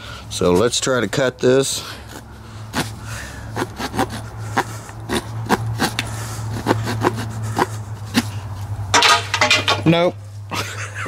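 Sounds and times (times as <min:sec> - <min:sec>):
small saw scraping wood: 0:03.6 - 0:08.3.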